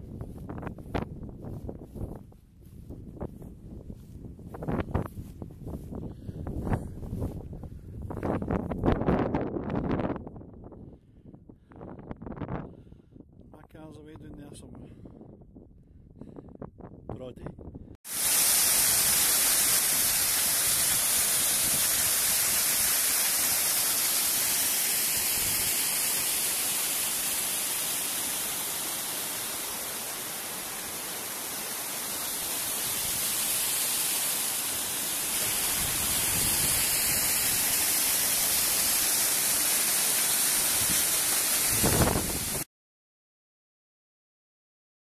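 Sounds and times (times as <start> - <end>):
waterfall splashing over rocks: 18.1 - 42.6.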